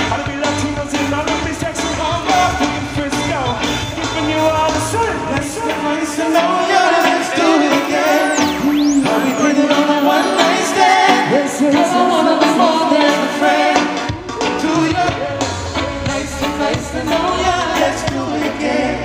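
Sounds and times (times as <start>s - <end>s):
drums: 0.0s - 19.0s
live reggae band: 0.0s - 19.0s
person singing: 5.6s - 19.0s.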